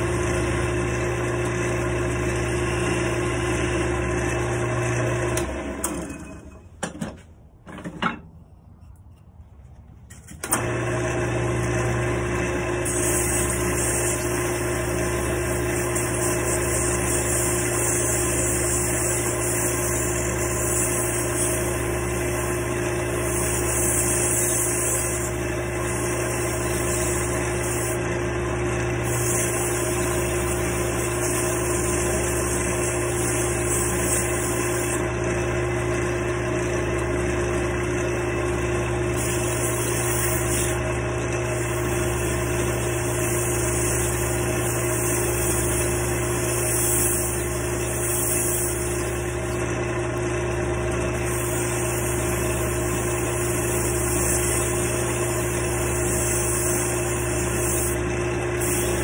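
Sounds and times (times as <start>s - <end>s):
lathe motor humming: 0.0s - 6.4s, 10.5s - 59.0s
sandpaper hissing on wood: 12.9s - 14.3s, 23.2s - 25.3s, 29.0s - 35.0s, 39.2s - 40.8s, 43.2s - 49.2s, 51.2s - 58.0s, 58.6s - 59.0s.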